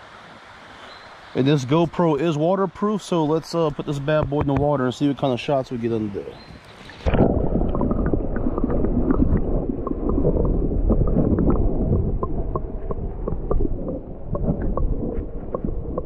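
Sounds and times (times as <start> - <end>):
muffled underwater moving water: 3.7 - 16.0.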